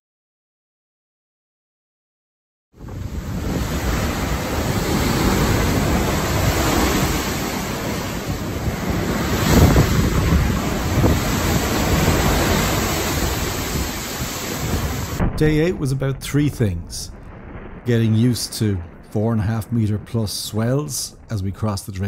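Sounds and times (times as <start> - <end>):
waves breaking against ship hull: 2.8 - 18.0
wind buffeting microphone: 2.8 - 21.4.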